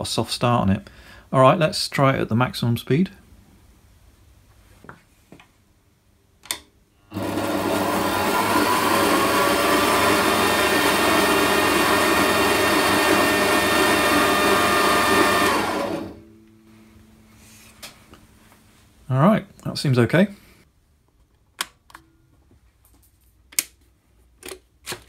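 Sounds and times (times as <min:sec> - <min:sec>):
bandsaw motor whining: 0:07.1 - 0:16.2.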